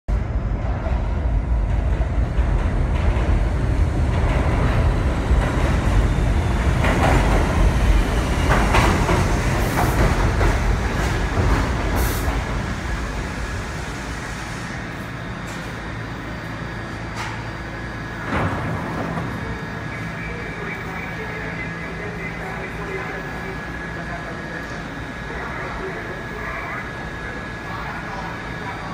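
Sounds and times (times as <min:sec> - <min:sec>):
stopped train humming: 0:00.1 - 0:28.9
train wheels rumbling on rail: 0:00.1 - 0:28.9.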